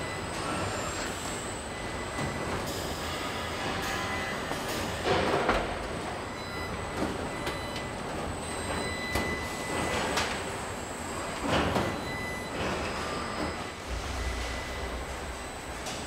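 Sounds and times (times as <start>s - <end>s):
steady machine din: 13.8s - 16.0s.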